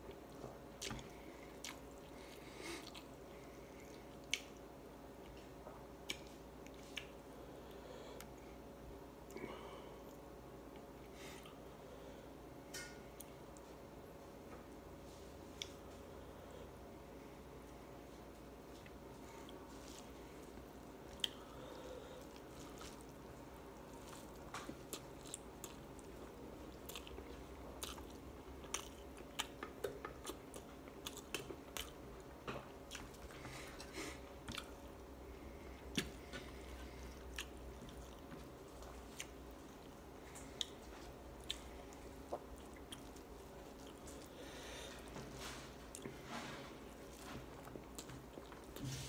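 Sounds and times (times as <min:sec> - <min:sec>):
chewing: 0:00.1 - 0:08.5, 0:18.7 - 0:49.0.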